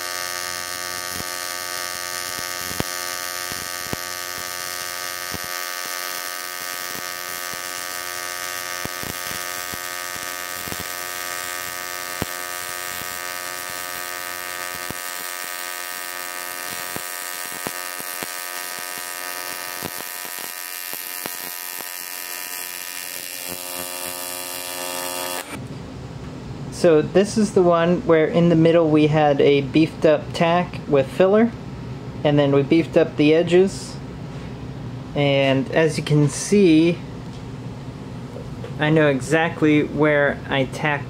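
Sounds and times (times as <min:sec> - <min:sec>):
welding arc buzzing: 0:00.0 - 0:25.6
welding arc crackling ticks: 0:00.0 - 0:25.6.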